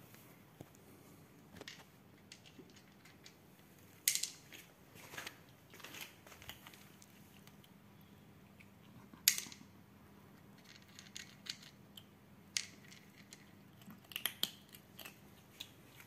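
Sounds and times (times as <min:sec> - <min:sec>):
cat crunching dry kibble: 0:05.3 - 0:07.7, 0:12.6 - 0:16.0.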